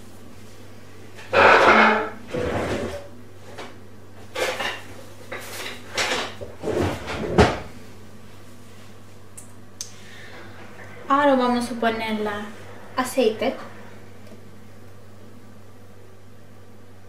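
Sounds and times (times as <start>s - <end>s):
kitchen knocks and bumps: 6.0s - 7.7s.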